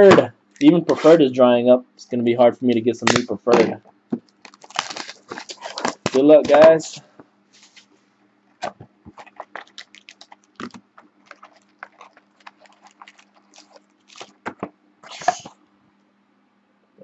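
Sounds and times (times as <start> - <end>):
packaging rustle: 4.2 - 6.7, 9.1 - 15.5.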